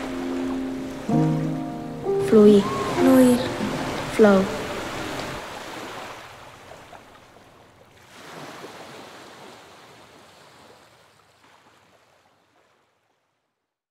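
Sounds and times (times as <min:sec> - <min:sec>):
water rushing: 0:00.0 - 0:09.4.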